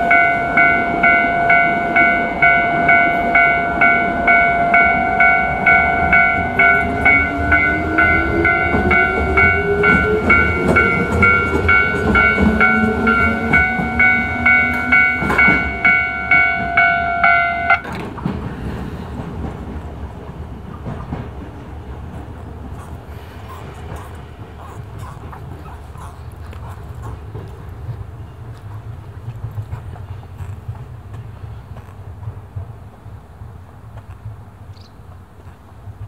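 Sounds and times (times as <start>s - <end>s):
level-crossing alarm chiming: 0.0s - 17.9s
railcar motor whine: 0.0s - 34.9s.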